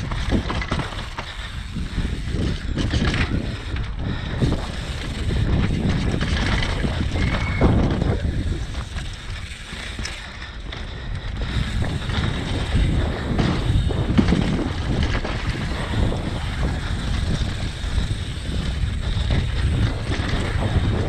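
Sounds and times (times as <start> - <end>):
bike rattling on dirt trail: 0.0 - 21.0
wind buffeting microphone: 0.0 - 21.0.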